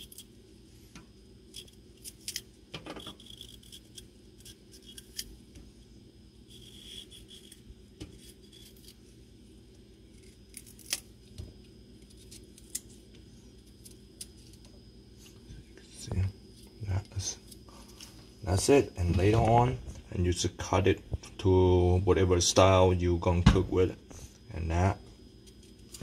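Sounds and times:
knife peeling broccoli stalk: 0:01.5 - 0:05.3, 0:06.5 - 0:09.0, 0:10.1 - 0:11.1, 0:12.0 - 0:13.0.

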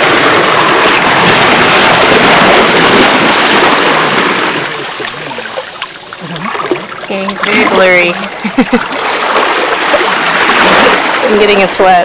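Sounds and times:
seawater splashing among boulders: 0:00.0 - 0:12.0.

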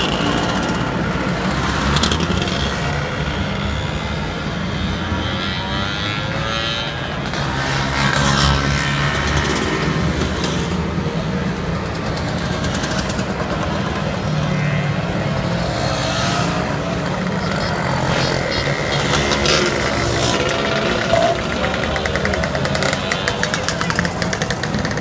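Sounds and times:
scooters riding past: 0:00.0 - 0:25.0
scooter engine rattling: 0:08.2 - 0:25.0.

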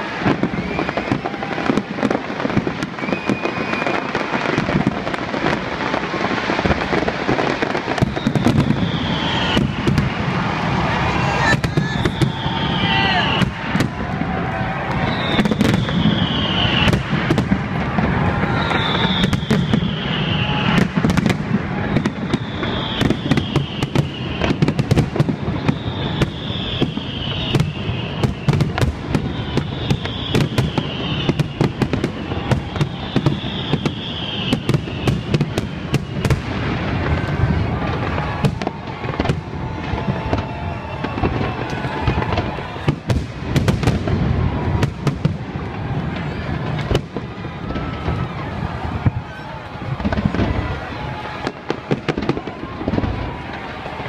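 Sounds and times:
fireworks bangs and crackling: 0:00.0 - 0:54.0
high falling whistle: 0:00.3 - 0:02.1, 0:02.8 - 0:04.6, 0:07.8 - 0:42.9.

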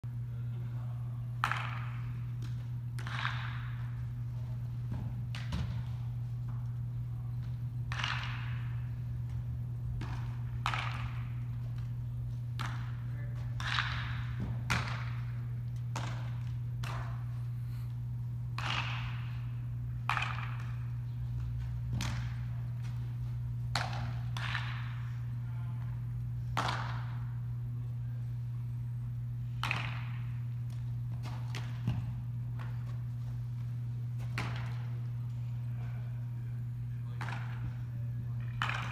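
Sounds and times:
steady low hum: 0:00.0 - 0:38.9
bat cracking against ball: 0:01.4 - 0:04.0, 0:07.9 - 0:08.9, 0:10.0 - 0:11.5, 0:13.6 - 0:17.3, 0:18.5 - 0:21.0, 0:23.7 - 0:25.2, 0:29.4 - 0:30.6, 0:38.5 - 0:38.9
balls smacking into gloves: 0:07.4 - 0:17.3, 0:18.5 - 0:25.2, 0:25.8 - 0:27.4, 0:29.5 - 0:33.1, 0:33.9 - 0:35.2, 0:37.1 - 0:38.9.

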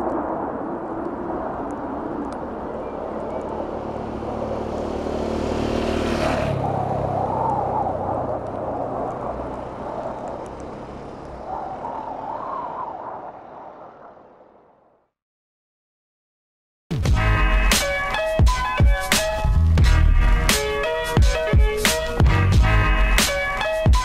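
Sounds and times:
motorcycle engine passing by: 0:02.5 - 0:11.5.

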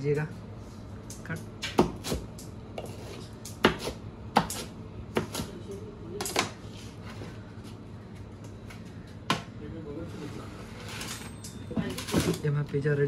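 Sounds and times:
blade chopping pizza: 0:01.6 - 0:05.7.

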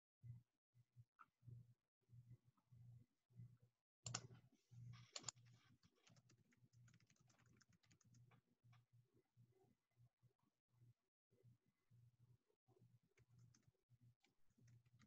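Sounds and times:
faint rapid clicking: 0:04.0 - 0:08.9, 0:13.2 - 0:15.0.

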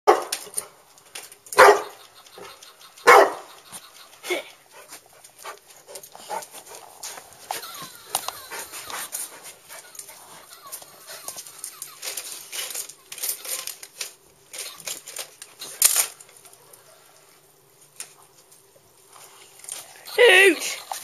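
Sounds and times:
dog barking: 0:00.1 - 0:00.3, 0:01.6 - 0:02.0, 0:03.0 - 0:03.5.

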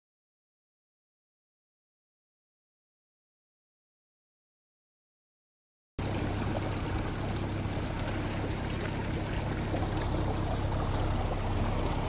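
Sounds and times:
boat engine running: 0:06.0 - 0:12.0
water splashing along hull: 0:06.0 - 0:12.0.

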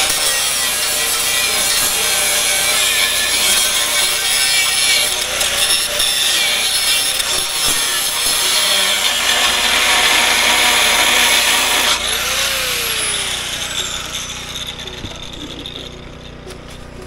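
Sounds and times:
angle grinder cutting metal: 0:00.0 - 0:16.5
grinder disc winding down: 0:06.5 - 0:16.5.

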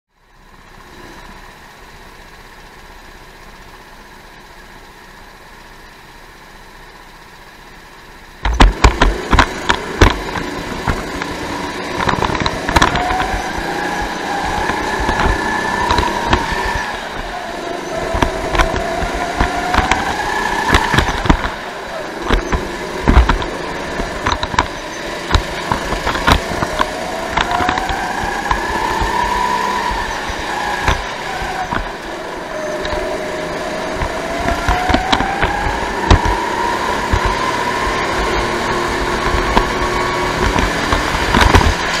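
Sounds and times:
go-kart engine revving: 0:08.2 - 0:42.0
sharp knocks: 0:08.4 - 0:17.3.

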